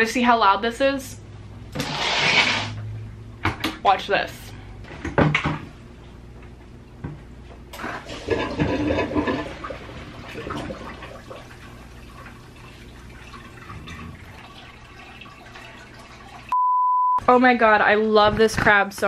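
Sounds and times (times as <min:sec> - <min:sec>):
aquarium water rushing: 0:07.8 - 0:16.6.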